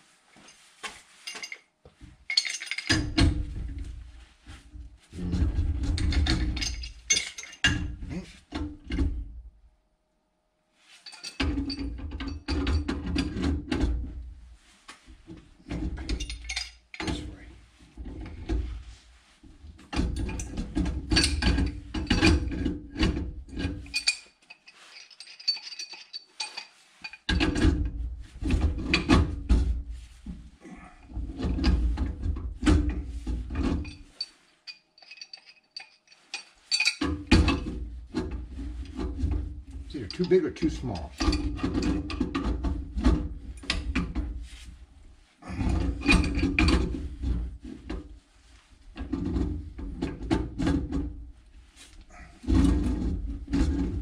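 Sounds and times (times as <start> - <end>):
wrenches clicking and scraping metal: 1.2 - 3.7, 5.3 - 9.0, 11.0 - 13.7, 15.7 - 17.4, 19.8 - 29.1, 31.1 - 42.8, 45.6 - 48.0.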